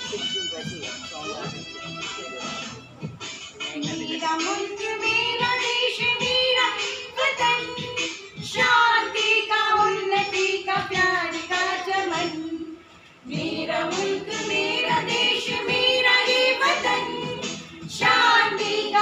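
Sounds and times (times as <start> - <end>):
women singing together: 3.8 - 19.0.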